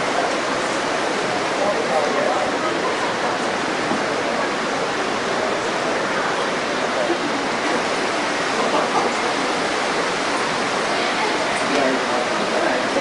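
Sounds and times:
crowd hubbub in a hall: 0:00.0 - 0:13.0.

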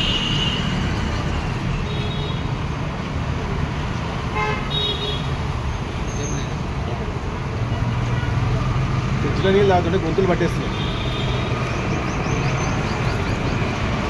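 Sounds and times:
street traffic noise: 0:00.0 - 0:14.0
vehicle horns tooting: 0:10.6 - 0:11.5.

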